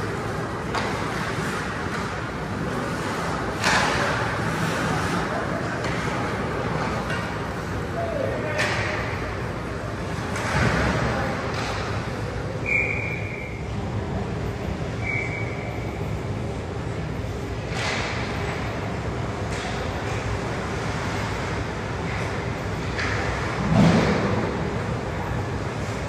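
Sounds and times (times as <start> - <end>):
skate blades scraping ice: 0.8 - 7.1.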